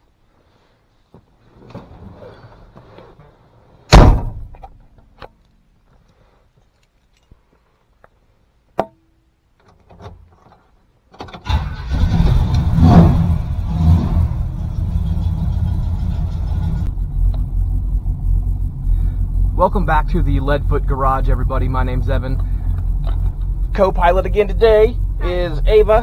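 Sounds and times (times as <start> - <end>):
heavy car door shutting: 3.9 - 4.6
truck engine starting and idling: 11.2 - 26.0.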